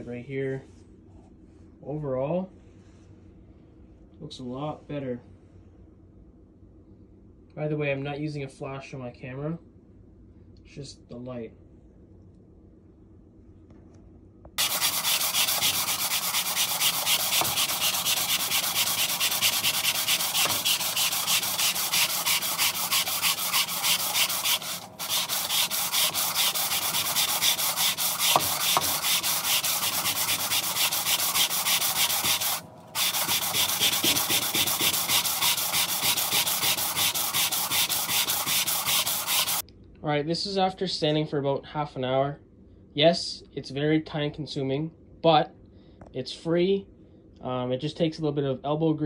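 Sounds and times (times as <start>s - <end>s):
sandpaper scraping on metal: 14.6s - 39.6s.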